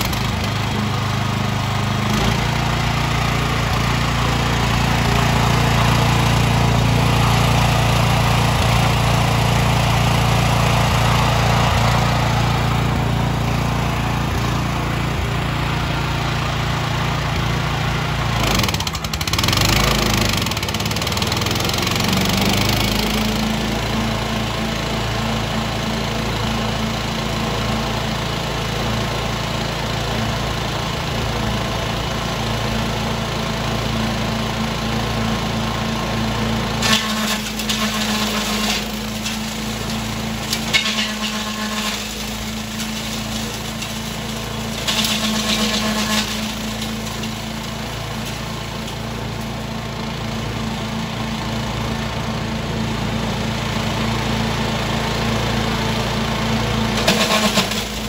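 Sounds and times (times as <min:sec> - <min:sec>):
material going through shredder: 0:00.0 - 0:24.5, 0:36.2 - 0:51.7, 0:52.4 - 0:58.0
chipper-shredder engine running: 0:00.0 - 0:58.0.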